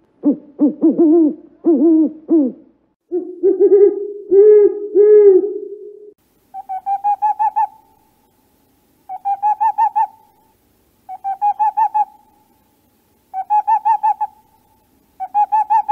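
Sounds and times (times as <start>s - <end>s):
owl rapid hoots: 0.2s - 5.8s, 6.5s - 8.0s, 9.1s - 10.5s, 11.1s - 12.5s, 13.3s - 15.9s.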